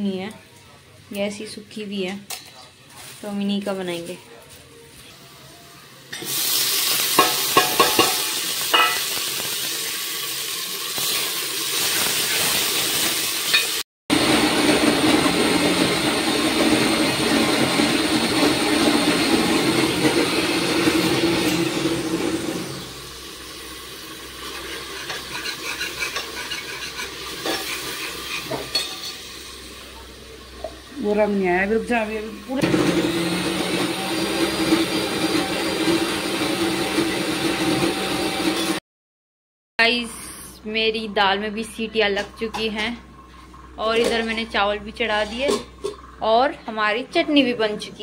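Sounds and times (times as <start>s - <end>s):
tomato sizzling in hot oil: 6.1s - 13.8s, 14.6s - 32.6s
electric mixer grinder running: 14.1s - 23.3s, 32.5s - 38.8s.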